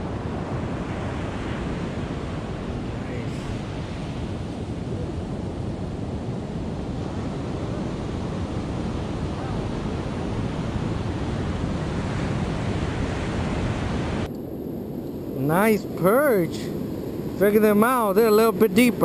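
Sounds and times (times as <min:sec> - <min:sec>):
ocean surf on sandy beach: 0:00.0 - 0:19.0
wind on microphone: 0:00.0 - 0:19.0.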